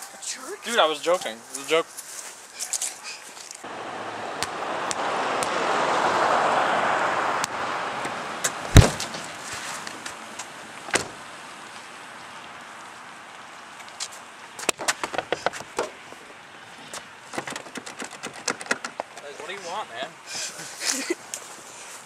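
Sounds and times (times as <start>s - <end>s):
car door thud: 8.7s - 9.3s, 10.9s - 11.2s.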